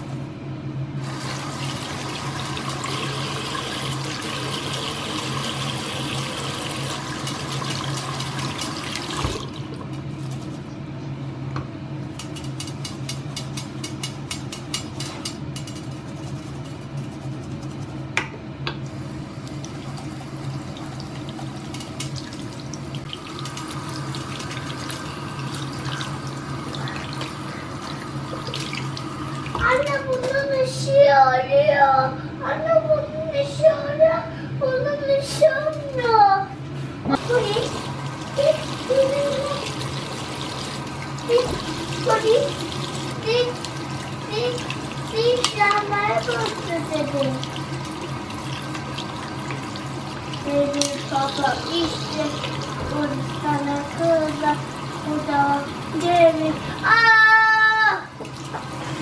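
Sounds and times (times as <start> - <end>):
tap water running into sink: 1.0 - 9.9, 19.3 - 30.4, 37.2 - 59.0.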